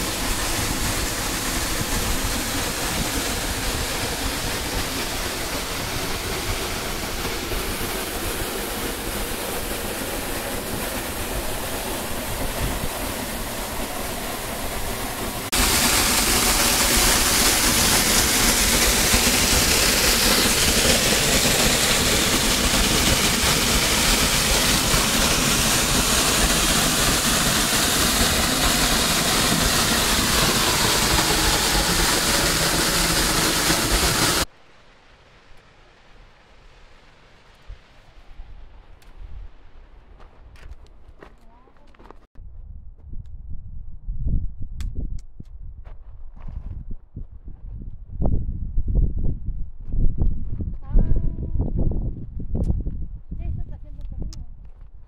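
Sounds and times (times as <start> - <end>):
water pouring over rock: 15.4 - 34.5.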